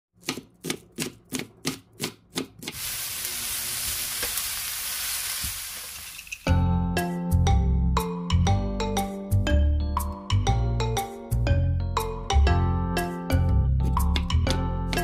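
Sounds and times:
knife chopping on wooden board: 0:00.2 - 0:02.8
vegetables sizzling in frying pan: 0:02.8 - 0:06.4.

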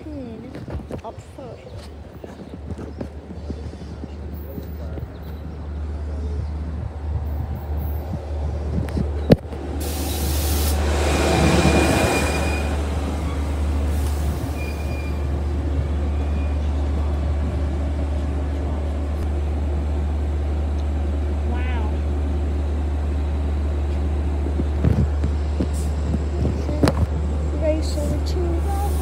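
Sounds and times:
train wheels rumbling: 0:00.0 - 0:29.0
brakes squealing: 0:07.2 - 0:19.2.

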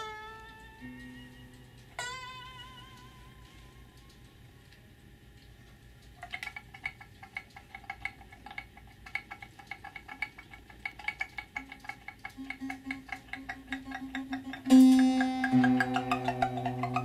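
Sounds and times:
ringing percussion tapped: 0:09.1 - 0:17.0
low held tone: 0:13.8 - 0:17.0.

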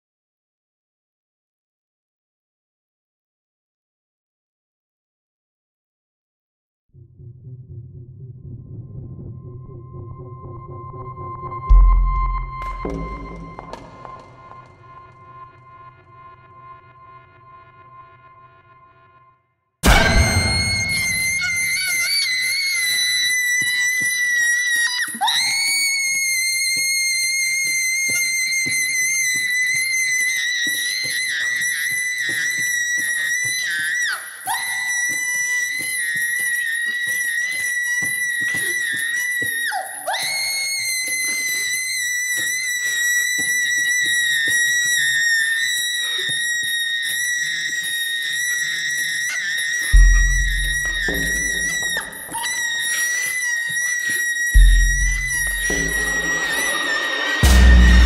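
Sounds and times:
deep low boom: 0:07.0 - 0:13.8, 0:50.0 - 0:51.6, 0:57.4 - 0:58.0
shrill high-pitched tone: 0:10.8 - 0:17.9, 0:19.8 - 0:58.0
woman screaming: 0:19.9 - 0:26.6, 0:33.6 - 0:43.4.

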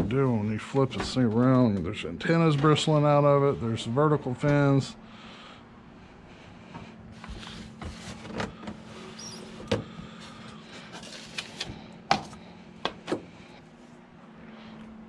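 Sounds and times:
faint steady hum: 0:00.0 - 0:15.0
foam and plastic handling noise: 0:07.2 - 0:13.2.

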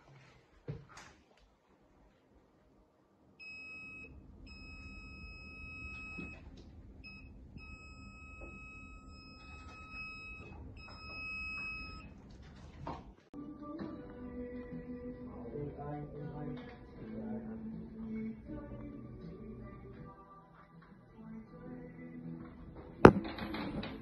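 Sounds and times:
detector alarm beep: 0:03.4 - 0:12.1.

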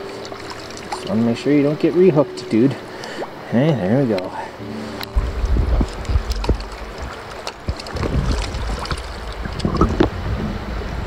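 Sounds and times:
muffled underwater flowing water: 0:00.0 - 0:11.0
underwater clicks and knocks: 0:05.0 - 0:10.2.

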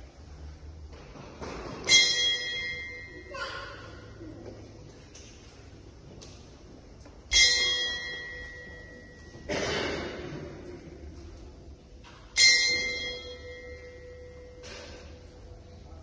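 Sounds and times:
boxing ring bell ringing: 0:01.8 - 0:04.2, 0:07.3 - 0:09.5, 0:12.3 - 0:15.5.

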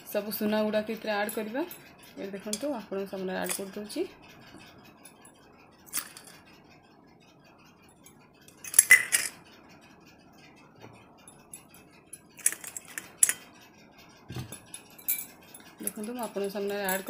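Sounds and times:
jewellery clinking on metal bowl: 0:02.4 - 0:02.8, 0:03.4 - 0:03.8, 0:05.9 - 0:06.4, 0:08.5 - 0:09.4, 0:11.5 - 0:13.4, 0:14.4 - 0:17.0.

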